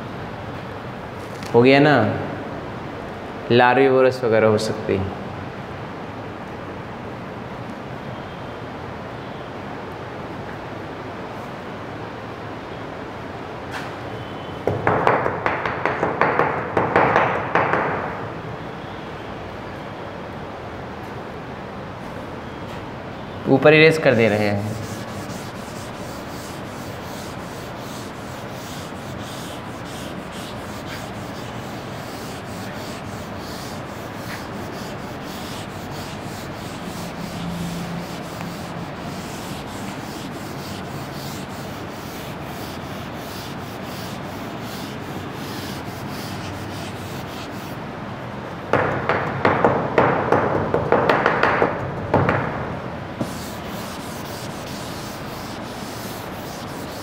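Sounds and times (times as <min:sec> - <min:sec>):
steady hiss: 0:23.6 - 0:47.9, 0:53.2 - 0:57.0
duster rubbing on board: 0:24.0 - 0:47.8, 0:53.2 - 0:57.0.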